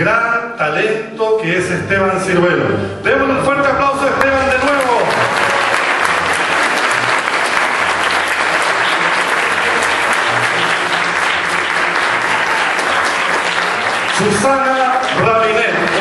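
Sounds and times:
audience applause: 0:04.2 - 0:16.0.

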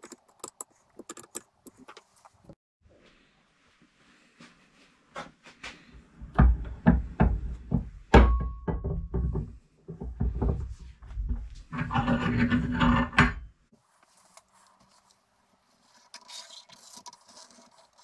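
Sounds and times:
sharp knocks on metal vice: 0:06.4 - 0:09.5.

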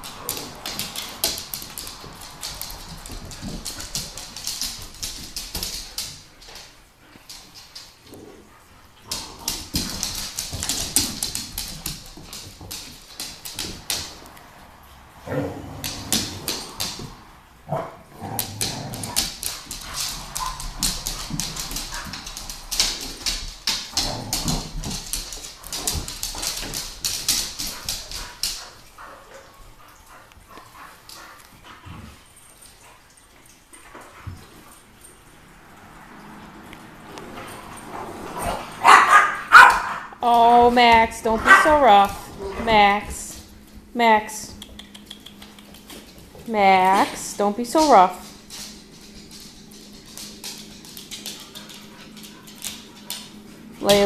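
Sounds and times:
dog claws clicking on hard floor: 0:00.0 - 0:08.3, 0:09.0 - 0:14.6, 0:15.6 - 0:29.2, 0:44.5 - 0:54.0
dogs vocalising in play: 0:15.0 - 0:22.7, 0:27.5 - 0:40.2.

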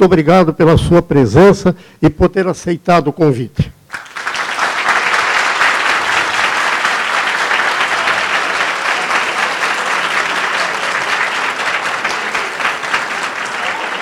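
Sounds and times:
audience applauding: 0:03.9 - 0:14.0.

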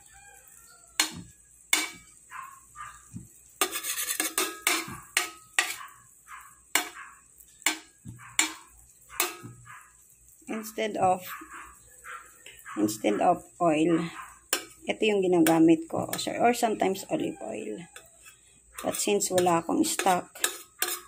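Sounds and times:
metal spoon scraping frying pan: 0:01.0 - 0:02.2, 0:02.9 - 0:09.7, 0:12.5 - 0:21.0.

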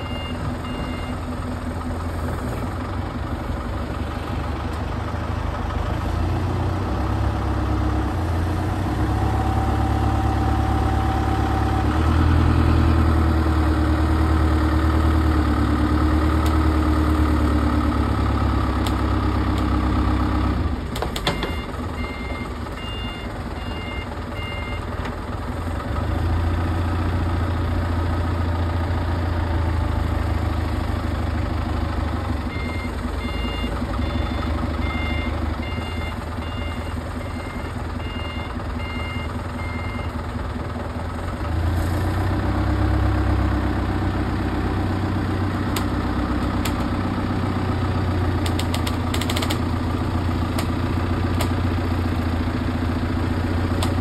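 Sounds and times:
reversing alarm beeping: 0:00.0 - 0:01.3, 0:21.3 - 0:24.9, 0:32.5 - 0:40.2
vehicle engine running: 0:00.0 - 0:54.0.

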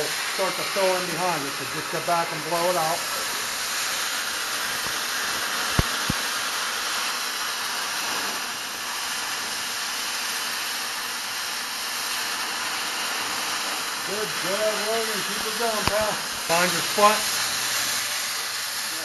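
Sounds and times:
cutting torch hissing: 0:00.0 - 0:19.0
sharp pops: 0:04.6 - 0:06.4, 0:15.3 - 0:17.4.

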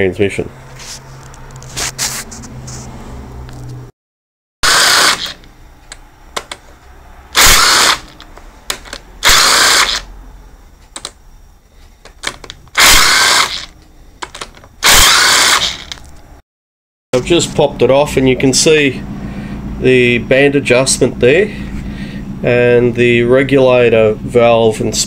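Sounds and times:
air wrench spinning bolts: 0:04.6 - 0:05.5, 0:07.4 - 0:10.1, 0:12.1 - 0:16.1.

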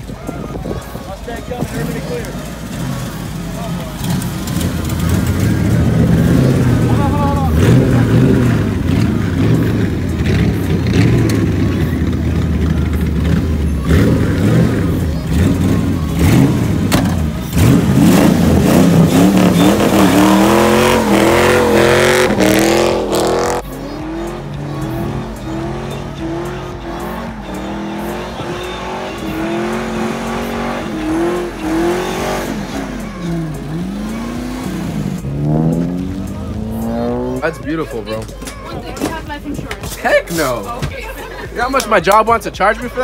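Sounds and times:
car engine revving through gears: 0:04.0 - 0:38.1.

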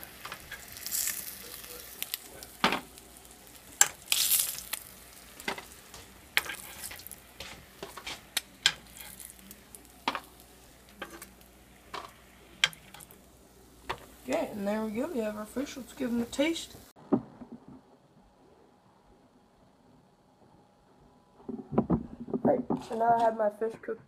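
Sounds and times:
hot oil sizzling: 0:00.0 - 0:17.0
metal spatula scraping frying pan: 0:05.4 - 0:09.4, 0:11.0 - 0:11.3.

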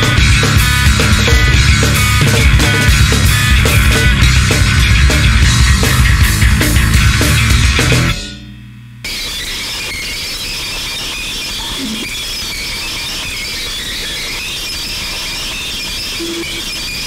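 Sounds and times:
steady shrill noise: 0:09.1 - 0:17.0.

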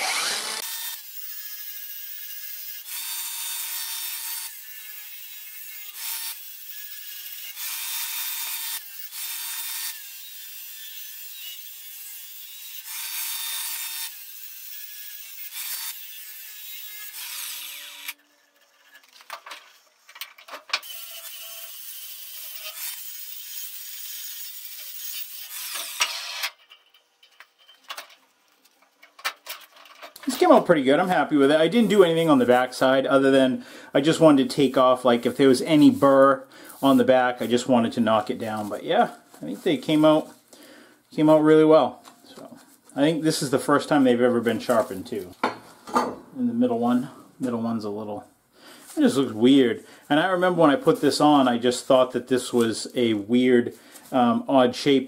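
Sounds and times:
angle grinder grinding metal: 0:00.0 - 0:27.8.

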